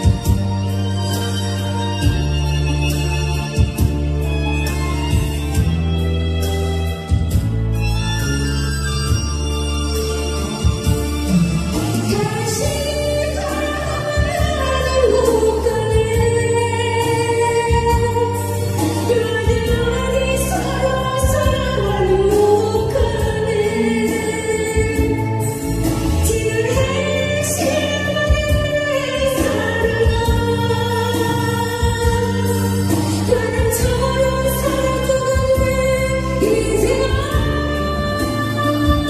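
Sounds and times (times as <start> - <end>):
instrumental accompaniment: 0.0 - 39.0
woman singing into microphone: 10.6 - 39.0.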